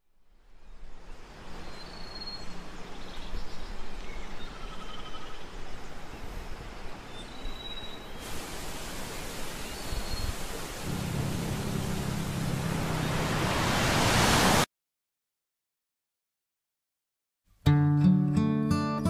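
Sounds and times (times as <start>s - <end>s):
wind: 0.0s - 14.7s
surf: 10.8s - 14.7s.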